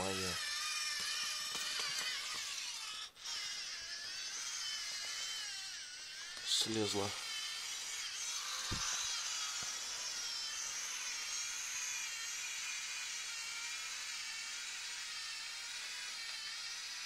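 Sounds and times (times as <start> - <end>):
robot servo motors whirring: 0.0 - 17.0
thump: 8.7 - 9.0.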